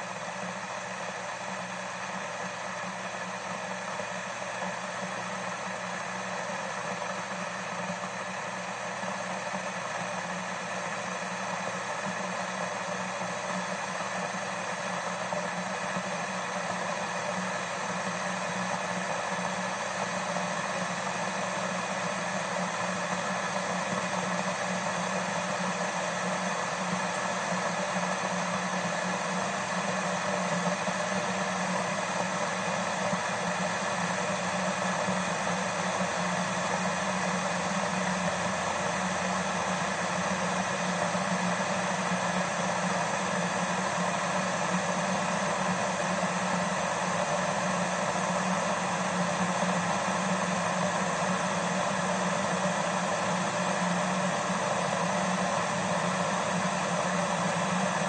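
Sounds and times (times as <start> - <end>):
electric kettle heating water: 0.0 - 58.0.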